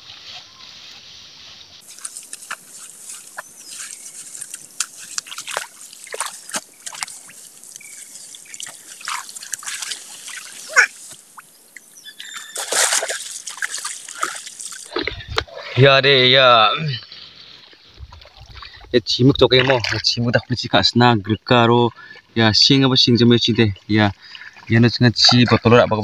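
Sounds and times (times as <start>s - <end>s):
feet wading through mud: 0.0s - 15.8s
hands splashing in wet grass and mud: 1.8s - 15.5s.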